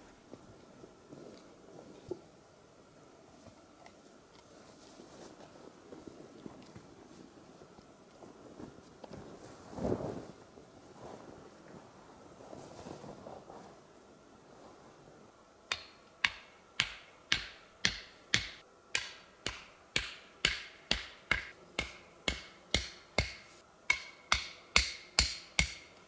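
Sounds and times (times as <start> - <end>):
sharp ringing knocks: 15.7 - 25.9.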